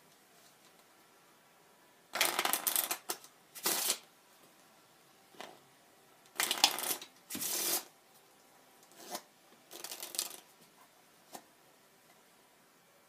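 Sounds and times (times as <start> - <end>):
playing cards shuffled by hand: 9.0 - 10.5.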